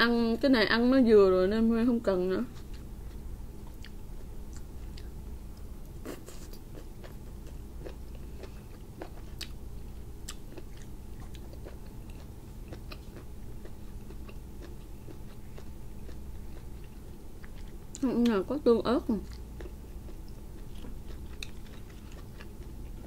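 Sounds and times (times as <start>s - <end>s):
low steady hum: 0.0s - 23.0s
chewing mouth clicks and smacks: 3.7s - 9.6s, 10.2s - 18.0s, 19.2s - 23.0s.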